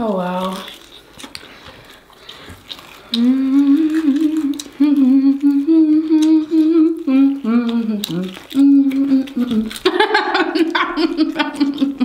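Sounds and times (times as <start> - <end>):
person humming a melody: 3.2 - 9.8.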